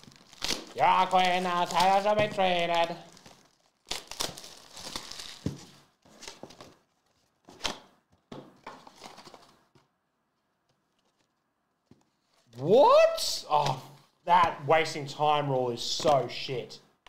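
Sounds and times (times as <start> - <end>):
packaging crinkling and tearing: 0.0 - 7.8.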